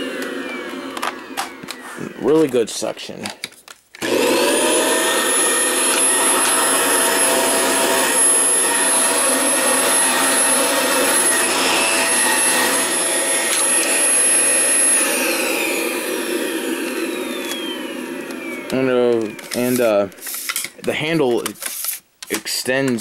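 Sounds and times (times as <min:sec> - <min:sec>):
vacuum cleaner whine: 0:00.0 - 0:03.0, 0:04.0 - 0:21.9.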